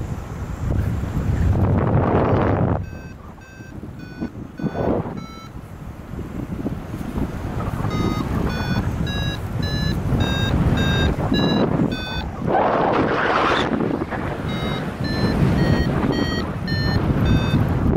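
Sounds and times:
short pitched beeps: 2.3s - 5.6s, 7.8s - 12.5s, 14.4s - 17.7s
air rushing over microphone: 11.0s - 17.9s.

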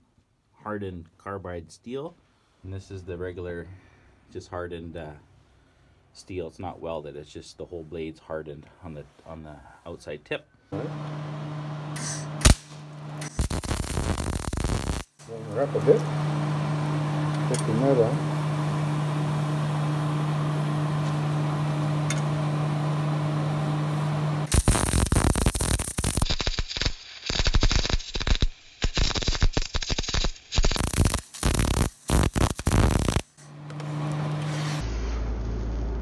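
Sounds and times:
electrical hum: 10.8s - 26.2s, 30.6s - 36.0s
arc welder crackling: 10.8s - 34.8s.

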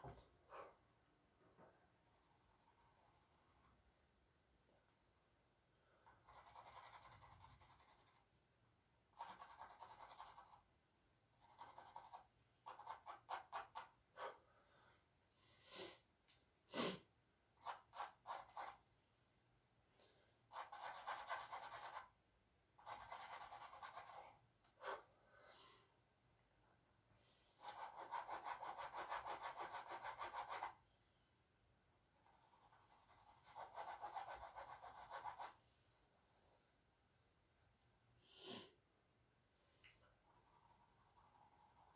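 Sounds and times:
charcoal scratching on canvas: 6.3s - 8.3s, 11.4s - 13.9s, 20.5s - 22.1s, 22.8s - 24.4s, 27.6s - 30.8s, 32.2s - 35.6s.

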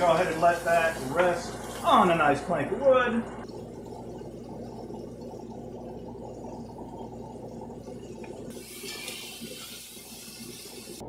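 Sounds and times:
butter and vegetables sizzling: 0.0s - 2.2s, 8.5s - 11.0s.

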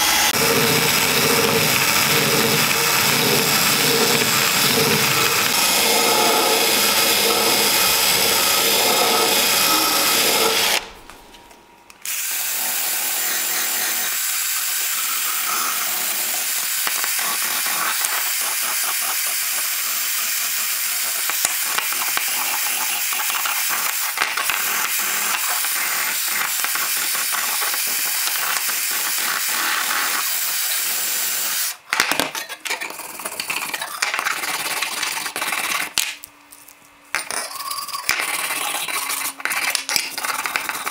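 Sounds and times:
drill wire brush scratching whir: 0.0s - 11.0s, 12.1s - 31.8s.

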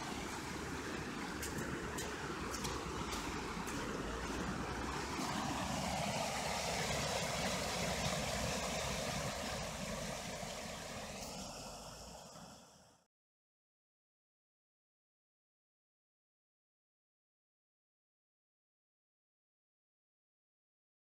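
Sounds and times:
water rushing over small waterfall: 0.0s - 13.0s.

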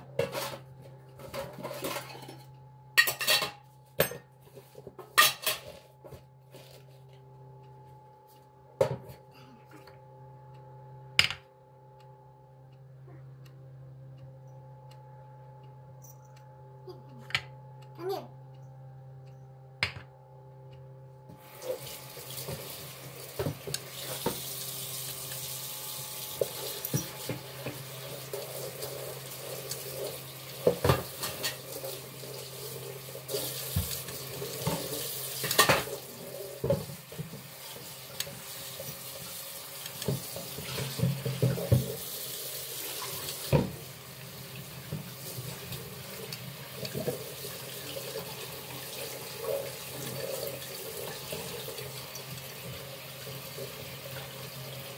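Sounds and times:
tap water running into steel sink: 21.3s - 54.9s.

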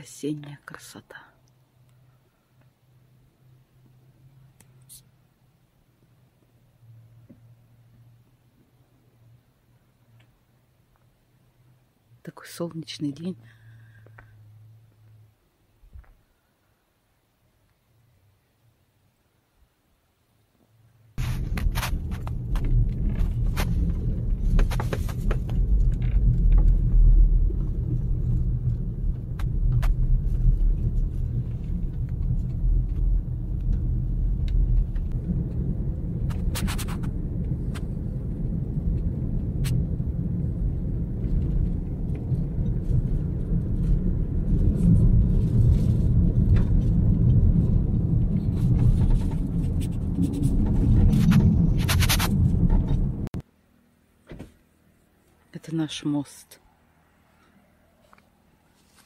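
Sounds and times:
tyre and engine rumble: 21.2s - 53.4s
sharp clicks and ticks: 21.3s - 37.9s.

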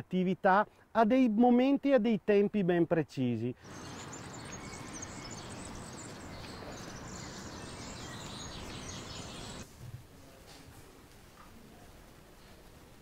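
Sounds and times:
outdoor background noise: 0.0s - 13.0s
faint high chirping: 3.6s - 9.6s.

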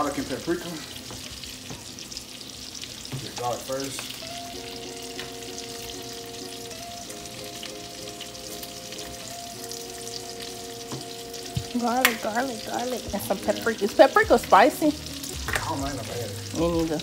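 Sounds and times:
food sizzling in a pan: 0.0s - 17.0s
soft held music notes: 3.4s - 17.0s.

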